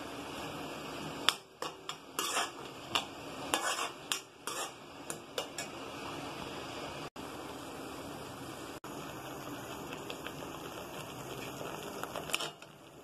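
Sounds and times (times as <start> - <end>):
steady sizzle: 0.0 - 13.0
spoon scraping metal pan: 1.6 - 5.7.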